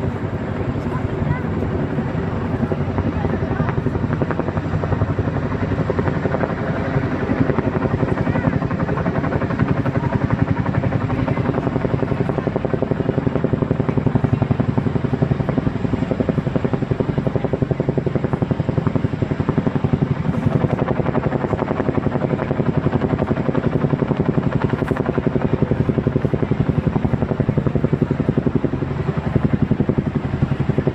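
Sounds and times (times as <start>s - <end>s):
helicopter rotor blades chopping: 0.0s - 30.9s.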